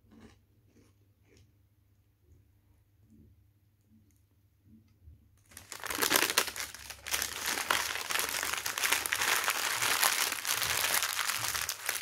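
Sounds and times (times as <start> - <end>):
paper wrapper crinkling: 5.4 - 12.0.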